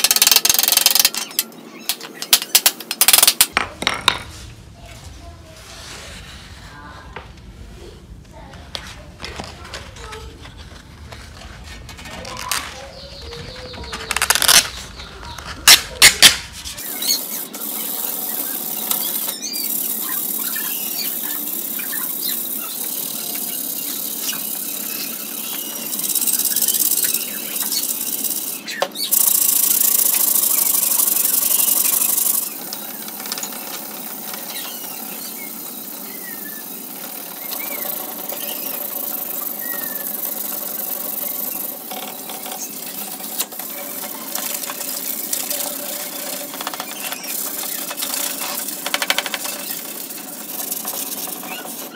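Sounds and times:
sandpaper crackling and tearing: 0:05.5 - 0:07.0, 0:08.8 - 0:51.9
sandpaper rasping on metal: 0:16.6 - 0:51.9.

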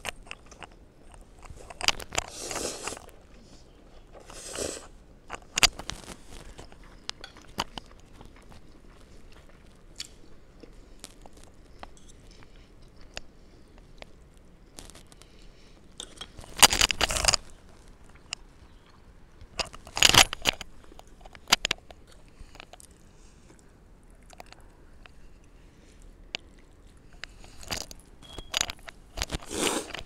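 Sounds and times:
chewing and mouth sounds: 0:05.3 - 0:15.4.

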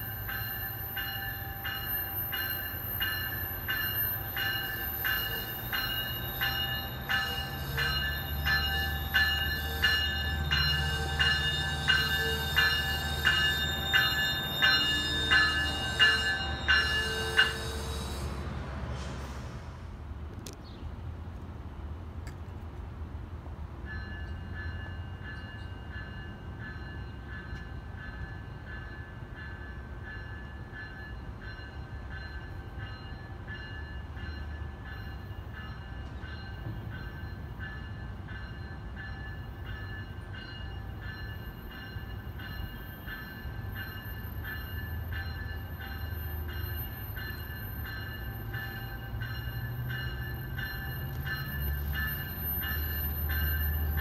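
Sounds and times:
high ringing tone: 0:00.0 - 0:18.3, 0:31.0 - 0:54.0
train rumble: 0:00.0 - 0:54.0.

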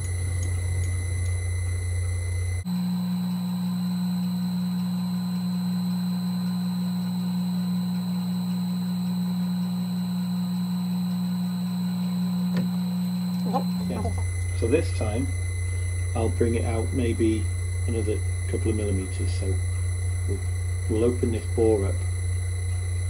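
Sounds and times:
metal lathe humming: 0:00.0 - 0:23.0.

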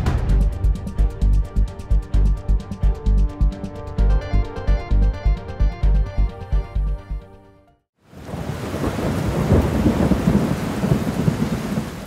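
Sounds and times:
electronic music with beat: 0:00.0 - 0:07.4
heavy rain: 0:08.0 - 0:12.0
rumbling thunder: 0:08.2 - 0:12.0.

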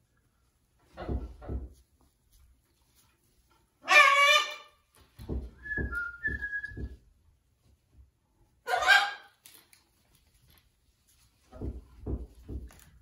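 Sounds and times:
macaw squawk: 0:08.7 - 0:09.3.

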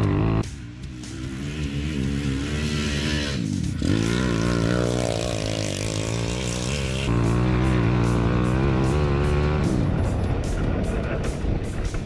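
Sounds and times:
kart engine revving: 0:01.0 - 0:09.9.

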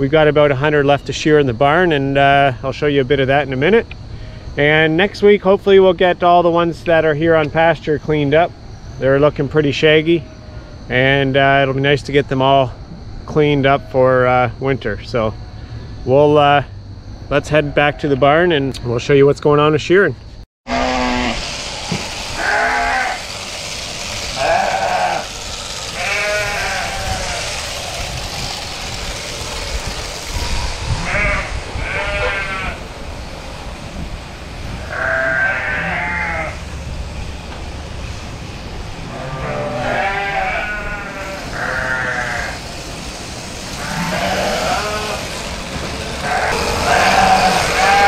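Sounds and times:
sheep bleating: 0:22.4 - 0:23.3, 0:24.3 - 0:25.3, 0:25.9 - 0:27.5, 0:31.0 - 0:32.8, 0:34.8 - 0:36.6, 0:39.1 - 0:42.6, 0:43.8 - 0:45.4, 0:46.0 - 0:48.0.

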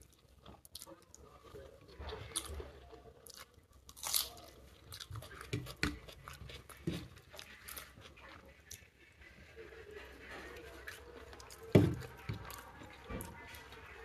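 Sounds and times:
person chewing with crunches: 0:00.0 - 0:09.0.

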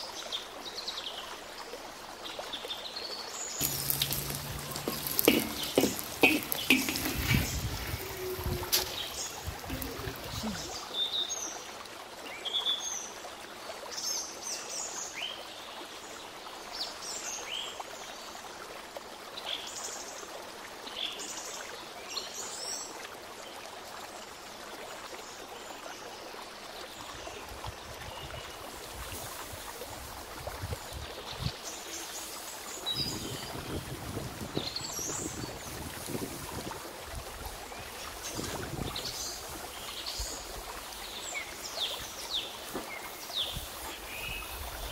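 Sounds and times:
metal scraping against a pan: 0:03.6 - 0:10.6
birds chirping: 0:03.6 - 0:10.8
steady hiss: 0:03.6 - 0:10.8.

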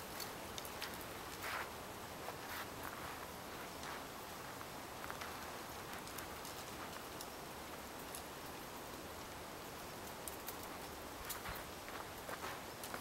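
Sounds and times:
faint outdoor hiss: 0:00.0 - 0:13.0
footsteps on packed snow: 0:00.8 - 0:05.3, 0:11.3 - 0:13.0.

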